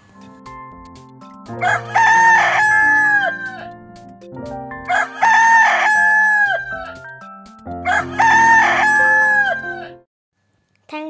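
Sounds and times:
background music: 0.0s - 10.1s
rooster crowing: 1.6s - 3.7s, 4.9s - 7.0s, 7.8s - 10.0s.

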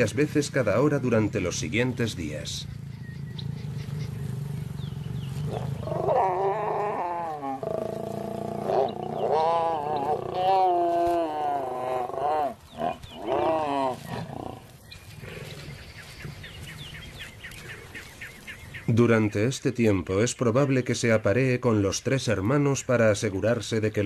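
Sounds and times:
lions growling and snarling: 2.3s - 18.2s.

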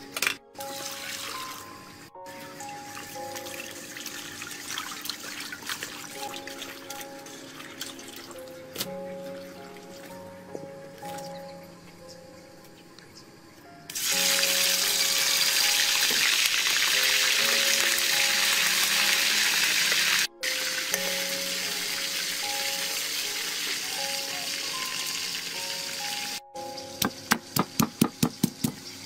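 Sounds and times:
background music: 0.0s - 29.0s
deep-frying sizzle in oil: 13.9s - 29.0s
pestle pounding in mortar: 27.0s - 28.8s.

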